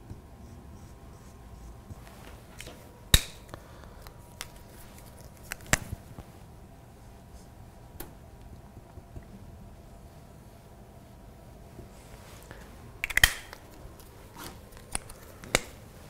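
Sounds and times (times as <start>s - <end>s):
marker cap plastic clicks: 13.0s - 13.7s.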